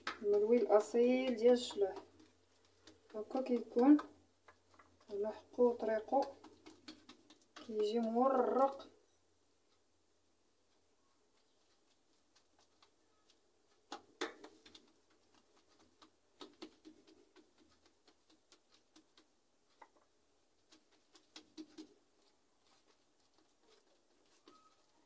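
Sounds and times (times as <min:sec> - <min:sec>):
hands slapping dough on marble: 0:00.0 - 0:08.9, 0:11.3 - 0:25.0.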